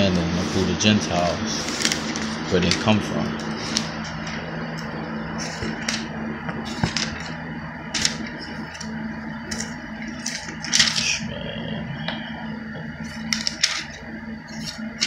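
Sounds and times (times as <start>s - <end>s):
low hum: 0.0s - 15.0s
thin pages turning: 1.5s - 7.3s, 7.9s - 11.0s, 13.0s - 15.0s.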